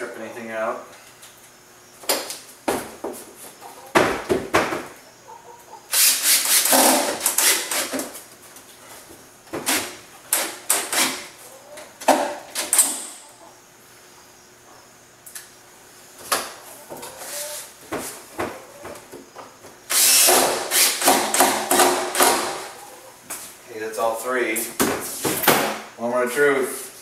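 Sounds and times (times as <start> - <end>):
cordless drill driving screws: 5.9 - 8.0, 19.9 - 21.6.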